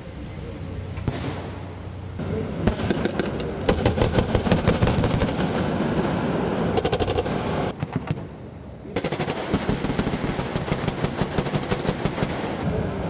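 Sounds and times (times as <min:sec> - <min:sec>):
boat engines humming: 0:00.0 - 0:07.7, 0:12.6 - 0:13.0
rapid automatic gunfire: 0:02.7 - 0:05.7, 0:06.8 - 0:07.3, 0:09.0 - 0:12.7.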